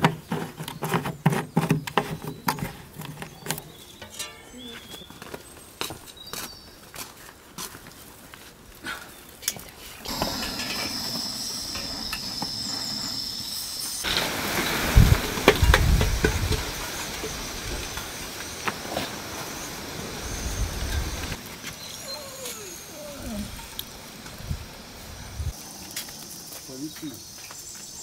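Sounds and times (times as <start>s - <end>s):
gas burner hissing: 9.9s - 26.8s
running tap water: 10.1s - 21.4s.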